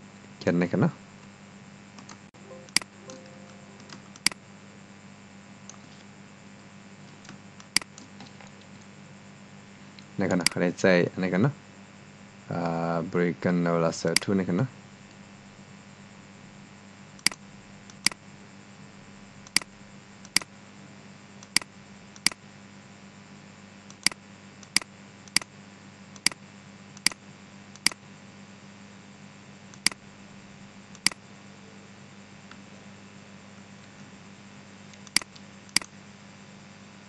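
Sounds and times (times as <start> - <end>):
low hum and faint hiss: 0.0 - 37.0
computer mouse clicking: 23.9 - 25.5, 27.0 - 27.2, 35.0 - 35.9.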